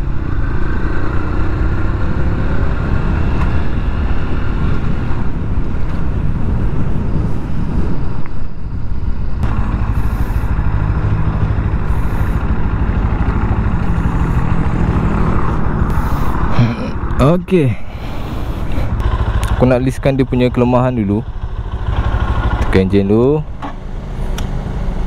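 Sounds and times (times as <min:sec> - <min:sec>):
road rumble: 0:00.0 - 0:25.0
wind: 0:00.0 - 0:25.0
motorcycle engine running: 0:08.4 - 0:25.0.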